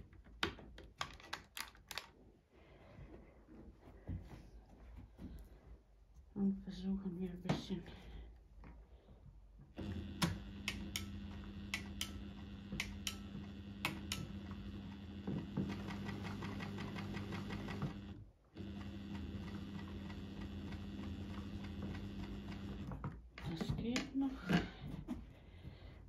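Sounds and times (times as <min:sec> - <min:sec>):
sewing machine motor humming: 0:09.7 - 0:23.1.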